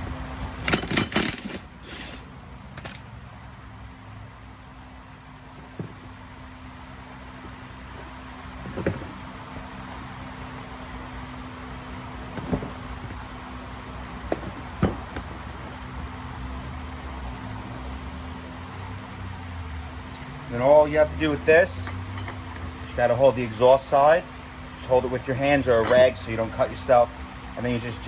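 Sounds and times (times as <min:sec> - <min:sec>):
metal parts clinking: 0:00.7 - 0:03.0, 0:25.7 - 0:26.2.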